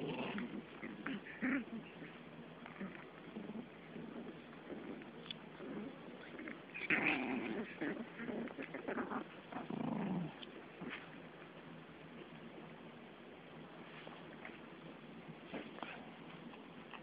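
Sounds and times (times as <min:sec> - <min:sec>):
puppies growling: 0:00.0 - 0:11.2.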